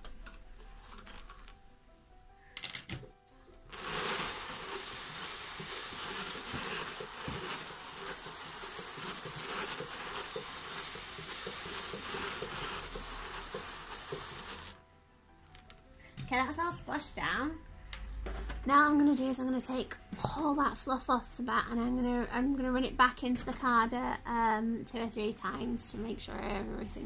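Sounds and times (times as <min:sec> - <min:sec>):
drum carder hissing and scratching: 0:03.7 - 0:14.8.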